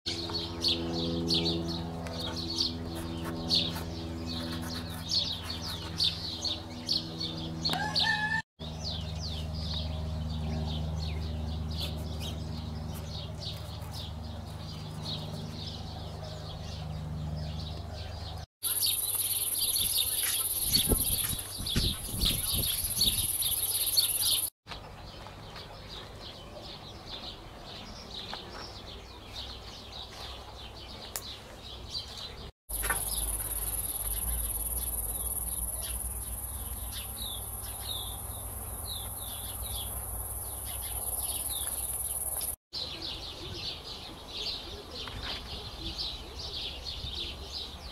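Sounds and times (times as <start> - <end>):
small birds chirping: 0.1 - 47.9
high insect drone: 32.7 - 36.8.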